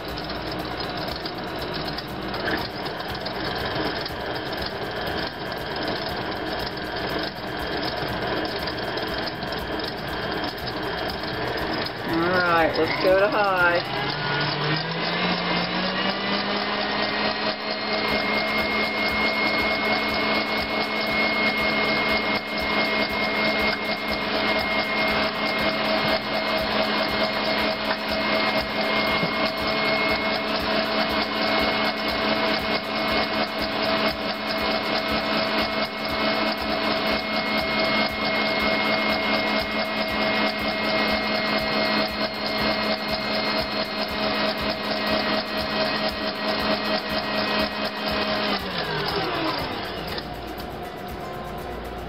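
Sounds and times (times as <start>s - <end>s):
stand mixer beating in metal bowl: 0.0s - 52.0s.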